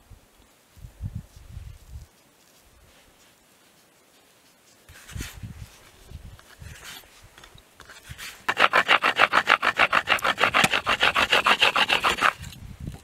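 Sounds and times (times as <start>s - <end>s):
wooden board scraping rub: 4.9s - 7.2s, 7.8s - 12.6s.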